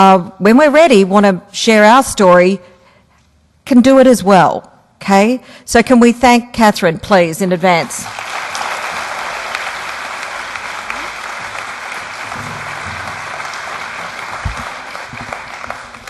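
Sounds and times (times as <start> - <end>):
audience applauding: 8.0 - 16.0.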